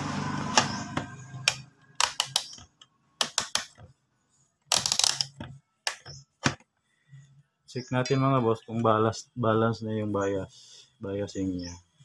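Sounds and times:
rotary selector clicking: 0.6 - 3.8.

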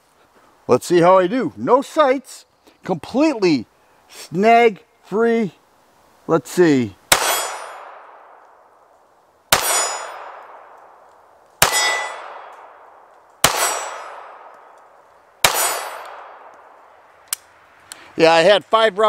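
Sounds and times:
pistol shots: 7.1 - 8.4, 9.5 - 11.0, 11.6 - 14.8, 15.4 - 16.7
steel plate target clanging: 7.2 - 7.8, 9.6 - 10.3, 11.6 - 12.3, 13.5 - 14.2, 15.5 - 16.1.

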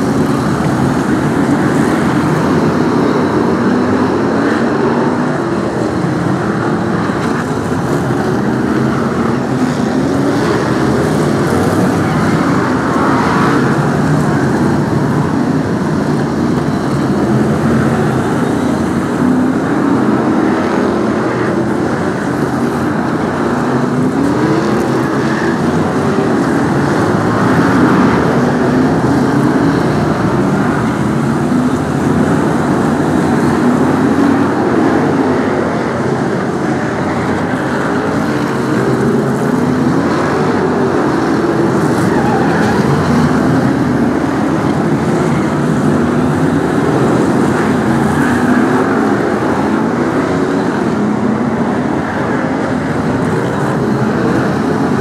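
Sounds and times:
stock cars racing: 0.0 - 55.0.

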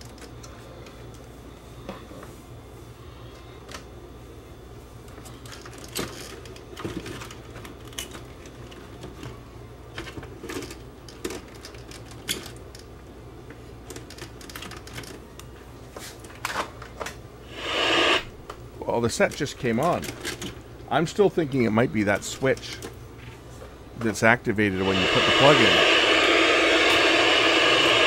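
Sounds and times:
small clicks and plastic rattles: 9.9 - 12.9, 13.8 - 15.5
steady low hum: 17.2 - 28.0.

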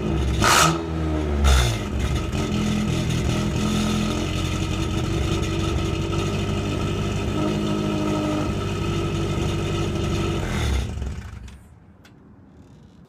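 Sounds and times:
car engine idling rough: 1.7 - 11.7.

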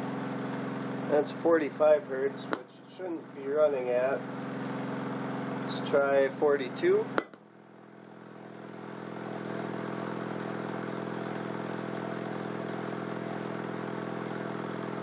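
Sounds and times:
subwoofer low buzzy drone: 1.0 - 8.6.

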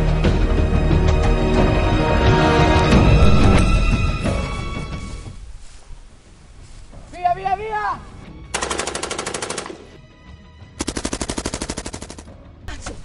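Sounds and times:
machine-gun fire bursts: 8.6 - 10.0, 10.8 - 12.3.

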